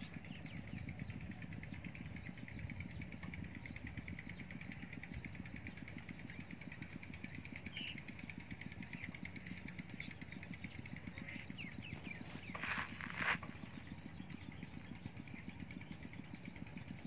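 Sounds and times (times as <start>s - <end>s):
bird chirps: 8.7s - 17.0s.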